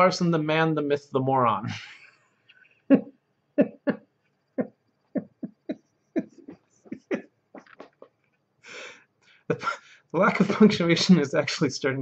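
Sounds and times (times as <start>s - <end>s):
man chuckling: 2.8s - 8.2s.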